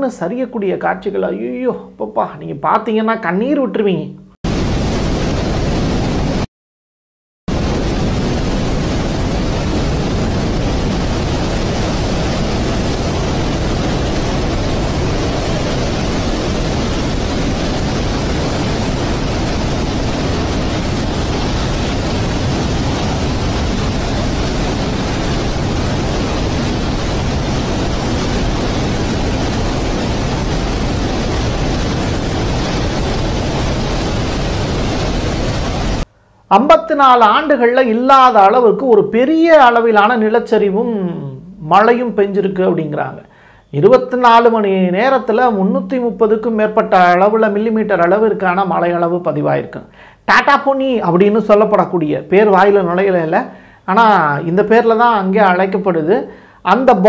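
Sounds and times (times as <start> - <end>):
floodwater rushing: 7.5 - 36.1.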